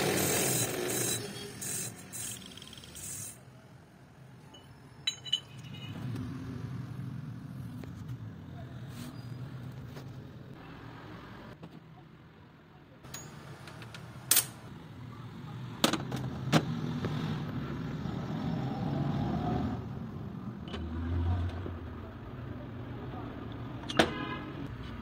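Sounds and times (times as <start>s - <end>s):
metal parts clinking on workbench: 4.5s - 6.0s, 13.1s - 13.5s, 14.3s - 14.6s.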